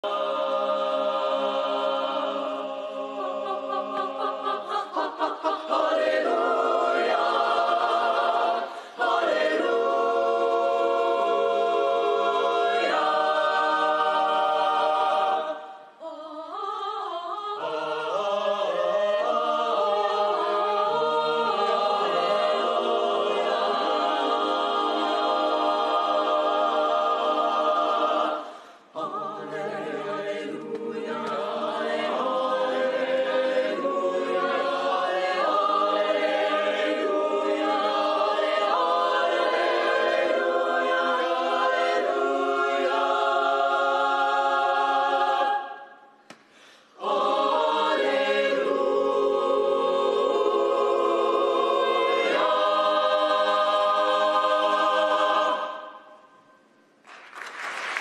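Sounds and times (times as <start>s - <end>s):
mixed choir singing: 0.0s - 46.2s, 46.8s - 56.6s
applause: 57.0s - 58.0s.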